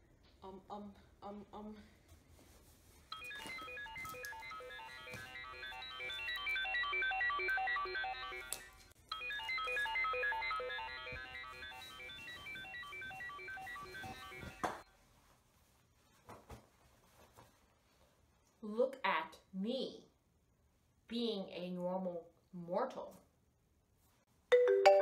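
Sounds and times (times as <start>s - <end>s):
phone ringtone melody: 3.1s - 14.8s, 24.5s - 25.0s.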